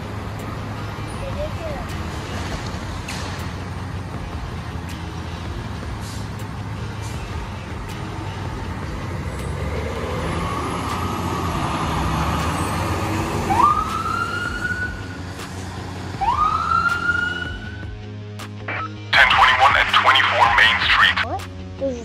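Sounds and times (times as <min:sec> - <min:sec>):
emergency vehicle sirens: 0:06.0 - 0:18.0, 0:18.7 - 0:21.2.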